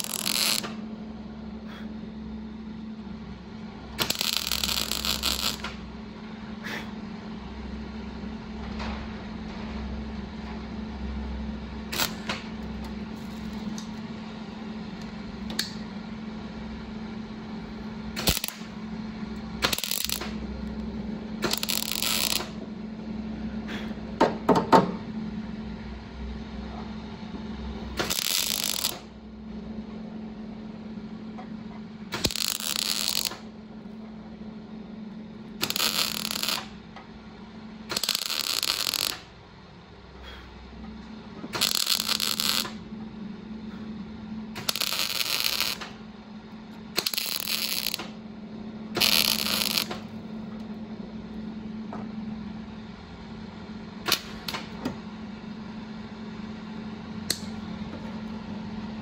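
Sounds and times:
steady hum: 0:00.0 - 0:59.0.

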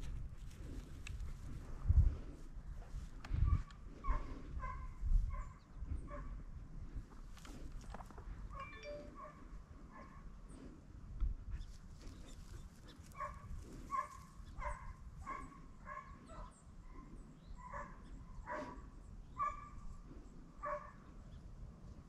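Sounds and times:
hound barking faintly: 0:11.6 - 0:18.8.

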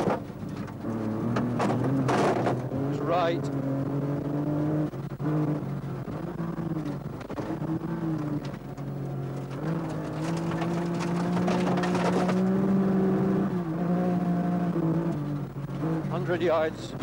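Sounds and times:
stones clattering against car: 0:00.0 - 0:02.7, 0:07.2 - 0:12.6
rally car engine revving: 0:00.0 - 0:17.0.

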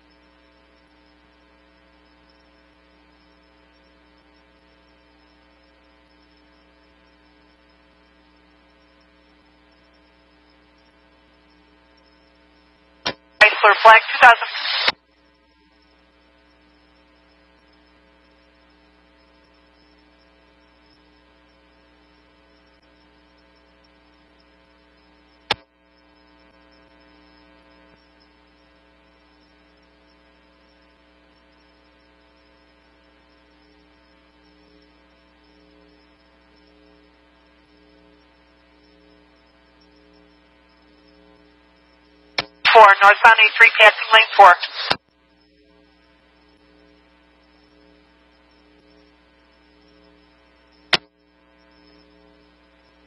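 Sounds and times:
low electrical hum: 0:00.0 - 0:53.0
sharp click: 0:25.5 - 0:25.7, 0:42.4 - 0:42.6, 0:50.9 - 0:51.1.

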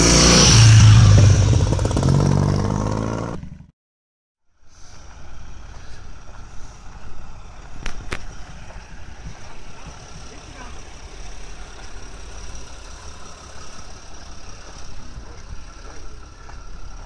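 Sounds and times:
motorcycle engine revving: 0:00.0 - 0:03.7, 0:07.9 - 0:17.0
outdoor background: 0:00.0 - 0:03.7, 0:04.4 - 0:17.0.

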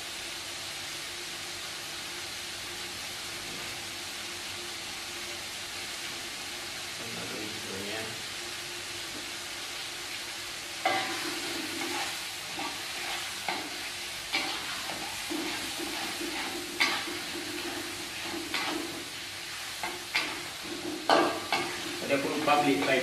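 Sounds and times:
chilli sizzling in oil: 0:00.0 - 0:23.0
spatula scraping and knocking pan: 0:10.8 - 0:19.1, 0:19.8 - 0:22.1.

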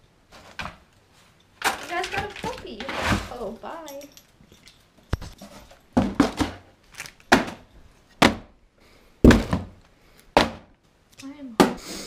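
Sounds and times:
items thunking into cardboard box: 0:01.6 - 0:03.4, 0:05.3 - 0:06.7, 0:07.3 - 0:07.6, 0:08.2 - 0:08.5, 0:09.2 - 0:09.8.

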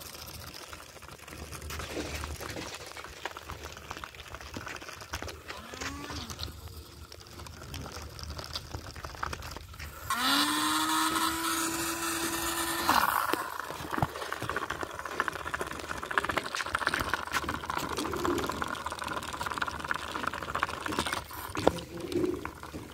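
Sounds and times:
toy car motor buzzing: 0:05.5 - 0:06.8, 0:09.9 - 0:14.1.

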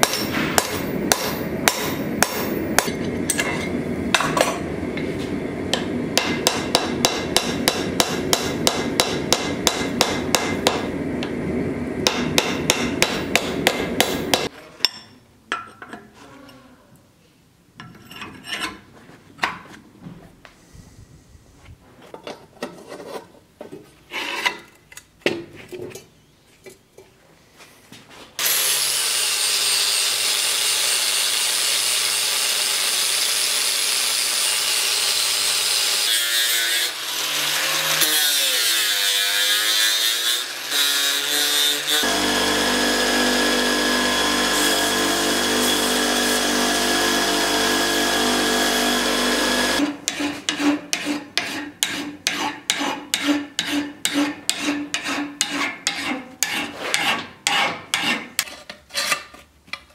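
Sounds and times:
scrapes and knocks: 0:17.8 - 0:20.4, 0:21.6 - 0:27.2, 0:50.1 - 0:59.9
angle grinder grinding steel: 0:28.4 - 0:51.2
hand file rasping on steel: 0:49.4 - 0:59.3.

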